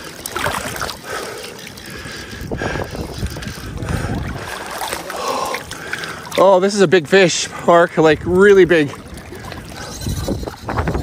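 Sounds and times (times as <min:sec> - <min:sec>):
footsteps wading over rocks: 0:00.0 - 0:07.0
river water: 0:00.0 - 0:11.0
wind buffeting microphone: 0:01.8 - 0:05.8, 0:08.0 - 0:11.0.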